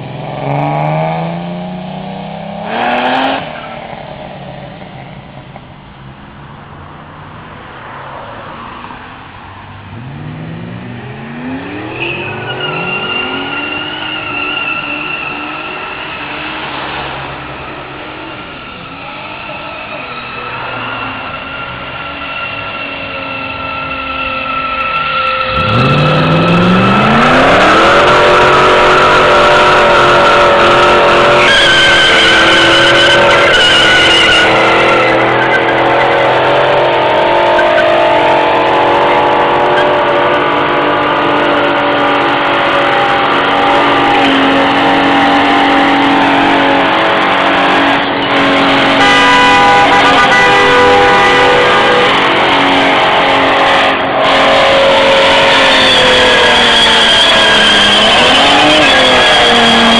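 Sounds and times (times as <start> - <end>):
car engine revving: 0.0 - 4.8, 9.8 - 59.9
tyres squealing: 11.5 - 17.3, 18.1 - 40.2, 54.3 - 59.9.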